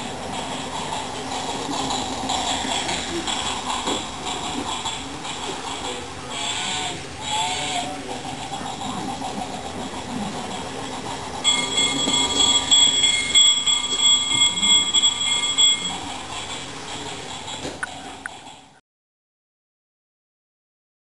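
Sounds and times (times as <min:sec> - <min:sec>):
toy train clattering on track: 0:00.2 - 0:05.9, 0:09.2 - 0:17.9
steady high-pitched tone: 0:11.4 - 0:16.7.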